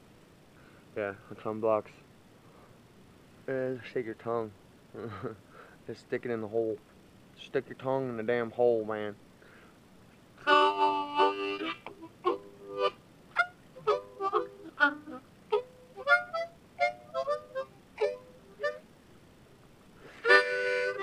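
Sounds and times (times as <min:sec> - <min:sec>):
harmonica notes and chords: 0:10.4 - 0:18.9, 0:20.0 - 0:21.0.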